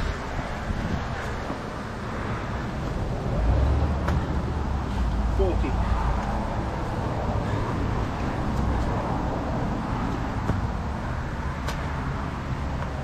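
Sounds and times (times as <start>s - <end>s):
hands and shoes slapping asphalt: 4.0s - 5.2s, 6.0s - 6.5s, 8.2s - 13.0s.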